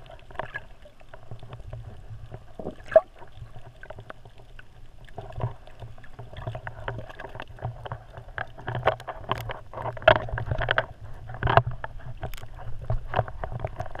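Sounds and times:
muffled water sloshing: 0.0s - 14.0s.

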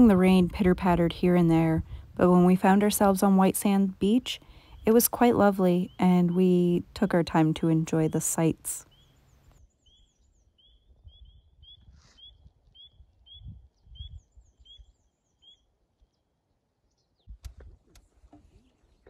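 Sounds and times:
wind rumble on microphone: 0.0s - 5.6s, 10.8s - 15.0s
bird chirping: 4.6s - 17.4s.

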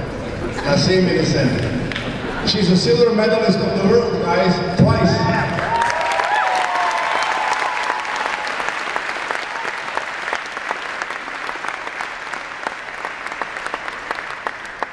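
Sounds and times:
crowd applauding: 5.4s - 14.9s.

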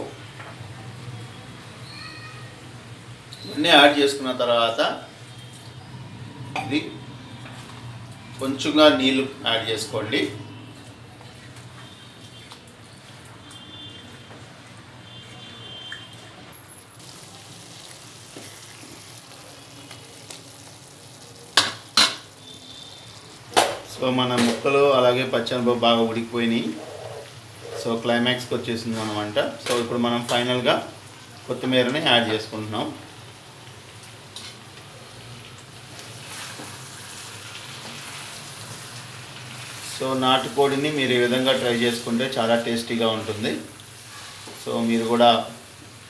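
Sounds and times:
curry sizzling in a pan: 16.0s - 46.0s.

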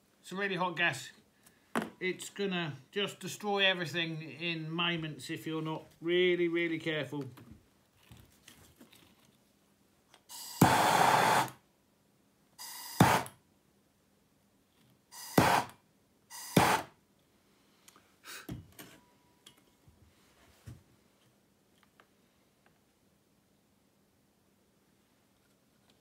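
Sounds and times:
gas torch flame bursts: 10.3s - 11.6s.

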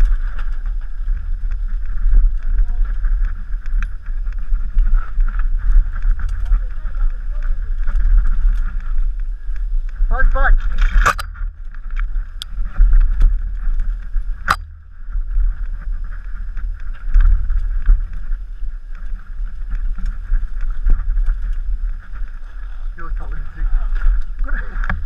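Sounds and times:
bike rattling and knocking: 0.0s - 25.0s
wind buffeting microphone: 0.0s - 25.0s.

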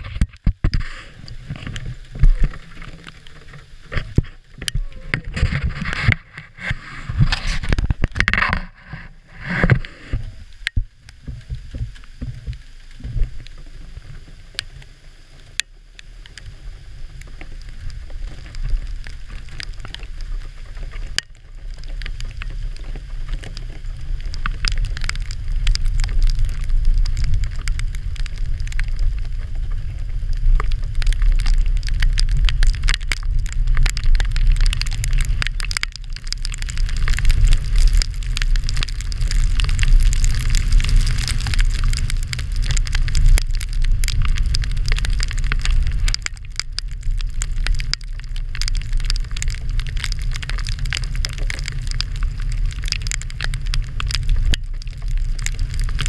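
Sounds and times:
wind buffeting microphone: 21.8s - 56.0s.

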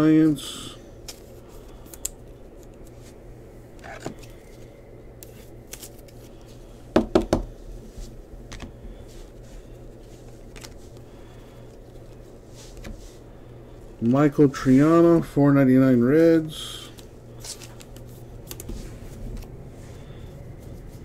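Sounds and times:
trading cards clicking and sliding: 1.0s - 6.6s, 8.5s - 13.2s, 16.8s - 21.0s.

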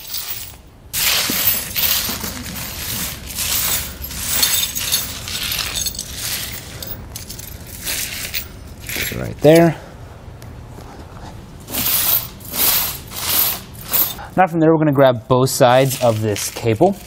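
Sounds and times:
tire chains rattling on concrete: 0.0s - 9.8s, 11.7s - 14.4s.

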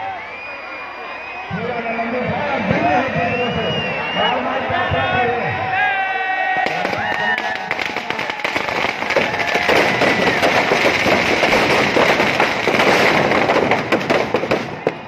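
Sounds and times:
firecrackers crackling and popping: 6.6s - 15.0s.

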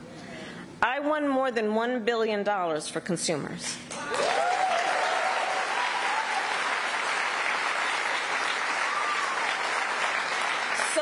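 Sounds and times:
crowd applauding: 4.0s - 11.0s.

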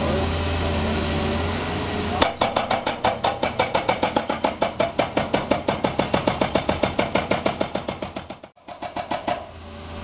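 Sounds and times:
rapid mechanical knocking: 2.2s - 9.5s.

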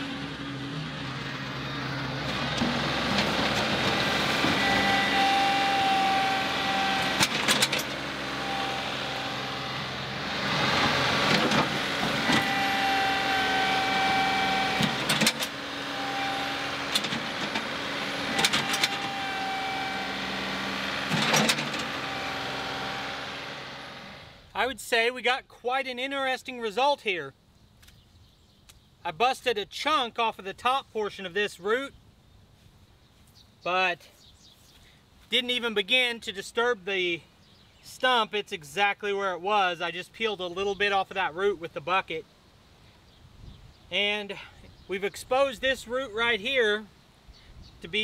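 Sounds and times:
whine: 0.0s - 24.5s
tractor diesel engine: 0.0s - 24.7s.

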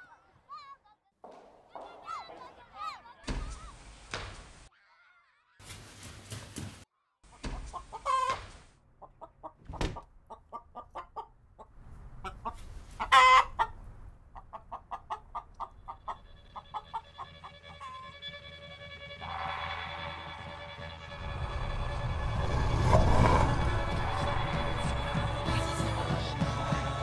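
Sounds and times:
hen clucking: 7.3s - 18.2s.

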